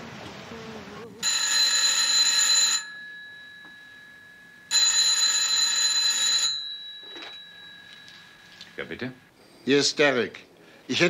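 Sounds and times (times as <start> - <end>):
electronic telephone ring: 1.2 - 8.9.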